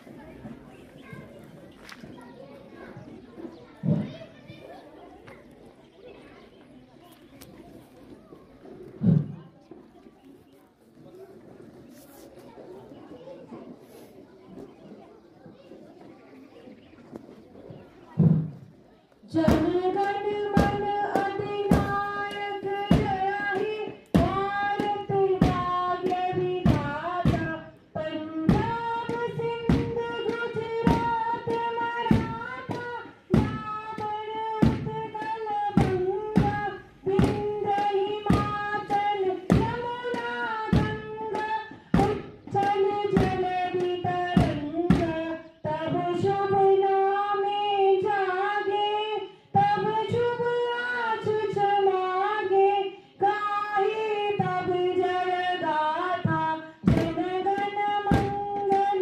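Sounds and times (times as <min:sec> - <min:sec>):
drum beating steadily: 0:18.2 - 0:48.7, 0:54.0 - 0:59.0
child singing: 0:19.3 - 0:59.0.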